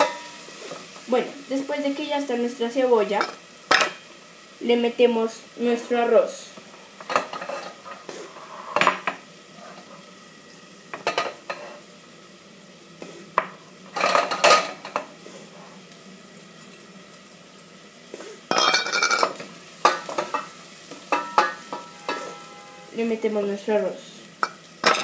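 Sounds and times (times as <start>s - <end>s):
onion and garlic sizzling: 0.0s - 25.0s
utensils clattering against a pot: 7.0s - 10.0s, 11.0s - 11.8s, 13.9s - 15.1s, 18.5s - 20.5s, 21.1s - 22.7s, 24.4s - 25.0s.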